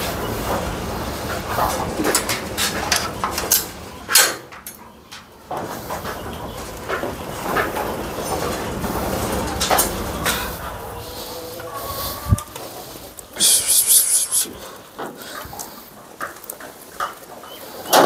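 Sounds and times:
goat hooves clattering: 4.6 - 10.8, 14.7 - 17.9.

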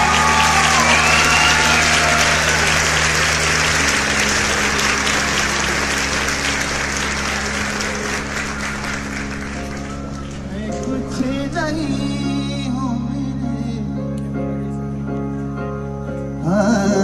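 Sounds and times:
crowd applauding: 0.0 - 12.2.

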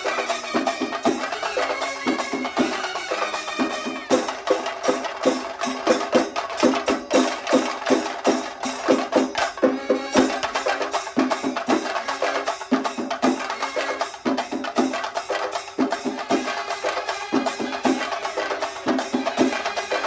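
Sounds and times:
brass band melody: 0.0 - 5.8, 7.2 - 14.5, 16.0 - 20.0
fast steady drumming: 0.0 - 20.0.

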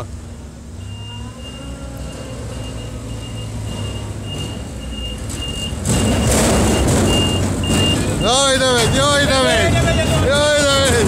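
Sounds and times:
forklift running: 0.0 - 11.0
warning beeper short high beeps: 0.8 - 10.8
loud rushing noise: 2.4 - 11.0.

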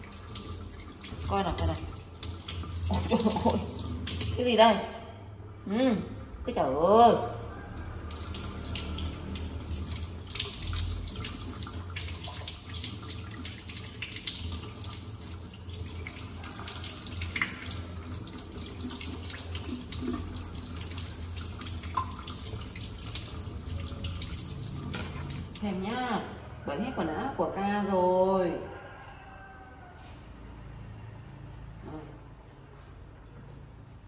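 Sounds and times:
faucet running into steel sink: 0.0 - 25.6.

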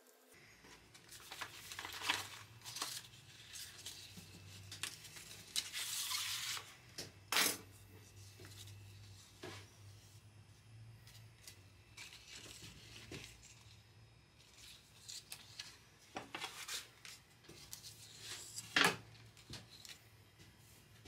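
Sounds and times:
paper rustling and crinkling: 0.7 - 6.7, 11.1 - 13.8, 14.4 - 20.0.

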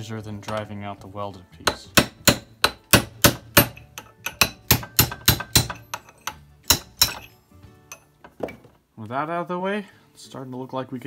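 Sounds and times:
hammer striking steel punch: 1.6 - 7.3.

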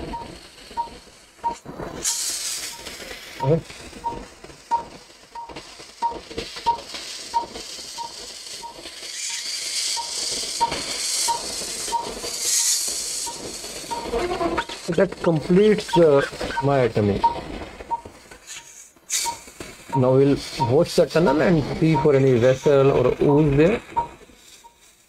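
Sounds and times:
patient monitor beeping: 0.0 - 1.6, 2.7 - 8.8, 10.0 - 12.2, 13.2 - 18.2, 19.2 - 24.2
hiss: 0.0 - 25.0.

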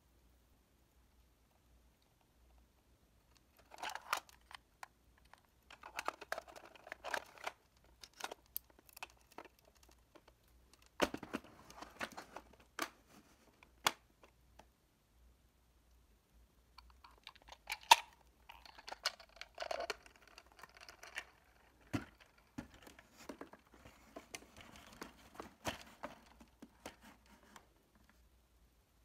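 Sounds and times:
crinkling: 3.2 - 14.7, 16.7 - 28.3.

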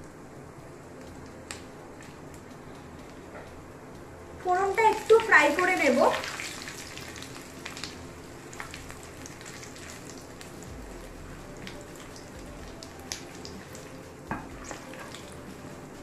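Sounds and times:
spices sizzling in hot oil: 4.4 - 16.0
oil popping: 5.0 - 15.6.

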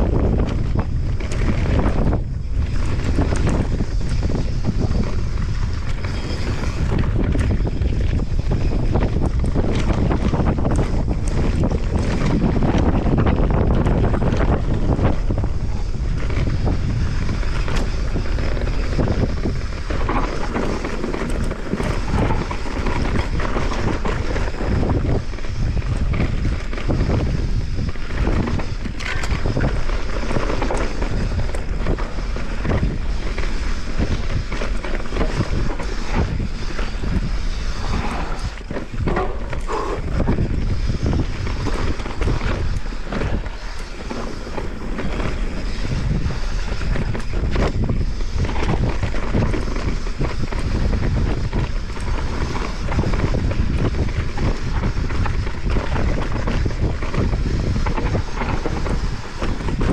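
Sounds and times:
bike rattling and knocking: 0.0 - 59.9
wind buffeting microphone: 0.0 - 59.9
tyres rolling over dirt: 28.1 - 59.9.

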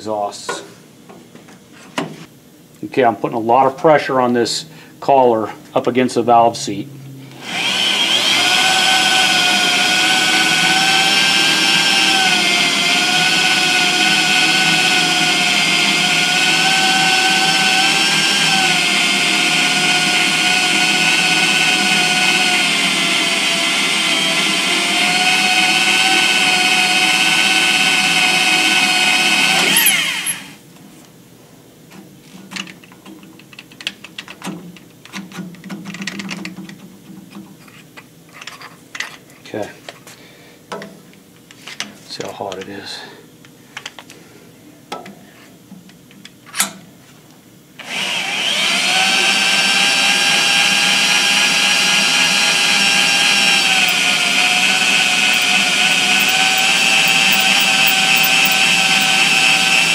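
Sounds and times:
electric drill whining: 7.3 - 30.6, 47.8 - 59.9.

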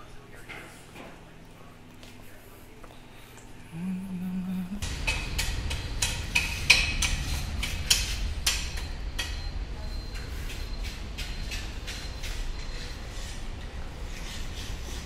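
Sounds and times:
steady low rumble: 3.8 - 11.9.

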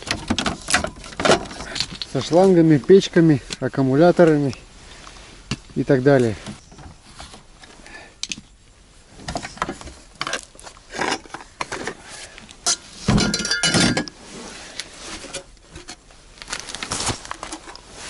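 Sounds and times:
metal pipes clanking: 12.6 - 14.1.

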